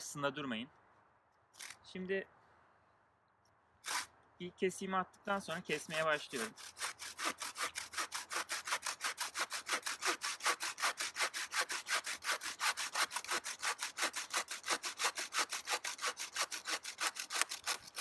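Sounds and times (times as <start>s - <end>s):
bow saw cutting wood: 1.6s - 1.8s, 3.8s - 4.2s, 5.5s - 18.0s.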